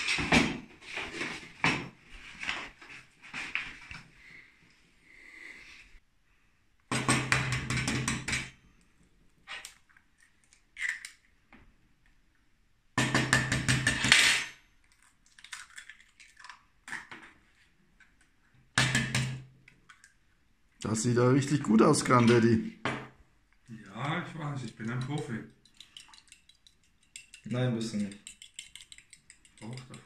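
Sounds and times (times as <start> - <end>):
eggs cracking into bowl: 9.6 - 11.3, 14.8 - 17.2, 24.5 - 30.0.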